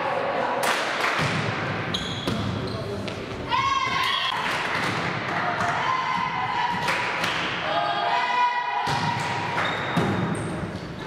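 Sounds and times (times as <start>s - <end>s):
people shouting and chanting: 3.4s - 4.7s, 5.3s - 9.6s.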